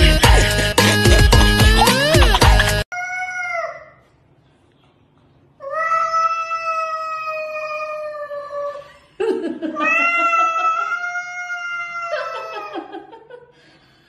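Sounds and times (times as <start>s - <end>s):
music: 0.0s - 2.8s
cat yowling: 5.6s - 8.7s, 9.8s - 12.7s.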